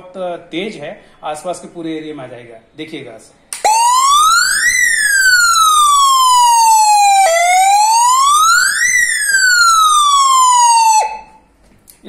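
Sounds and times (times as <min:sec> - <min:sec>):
electronic siren wailing: 0:03.7 - 0:11.4.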